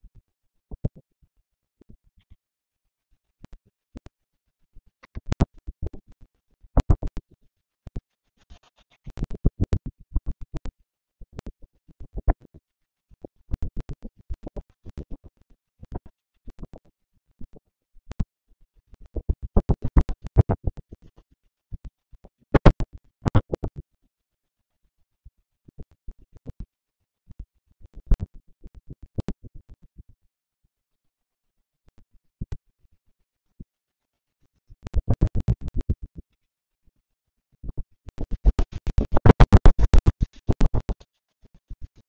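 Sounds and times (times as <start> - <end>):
rapid choppy clicks and crackles: 19.0 - 21.0, 22.5 - 23.8, 34.9 - 36.0, 37.7 - 41.1.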